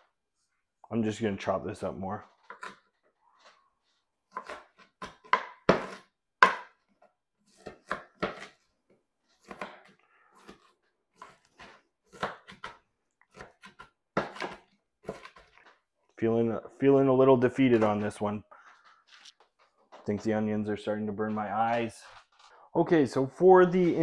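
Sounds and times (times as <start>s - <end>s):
knife chopping on plastic board: 4.3s - 8.7s, 9.3s - 15.6s.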